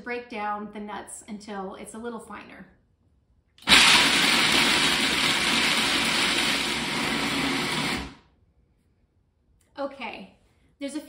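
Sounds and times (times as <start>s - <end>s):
food processor whirring grind: 3.6s - 8.2s.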